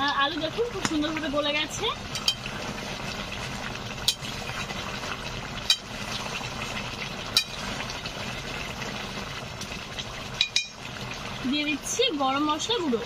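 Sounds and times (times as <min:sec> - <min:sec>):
metal spatula clinking on pan: 0:10.4 - 0:10.8.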